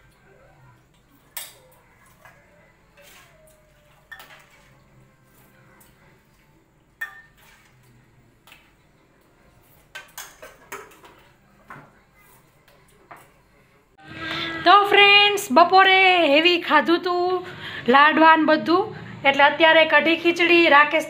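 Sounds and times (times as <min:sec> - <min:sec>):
metal spoons clinking on dishes: 0:03.0 - 0:04.8, 0:07.0 - 0:07.8.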